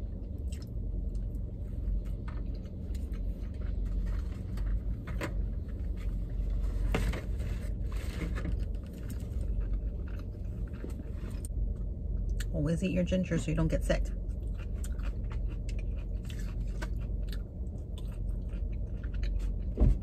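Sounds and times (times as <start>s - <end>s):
quiet chewing: 0.2s - 5.0s, 8.7s - 11.5s, 14.2s - 19.8s
car cabin rumble: 19.4s - 20.0s.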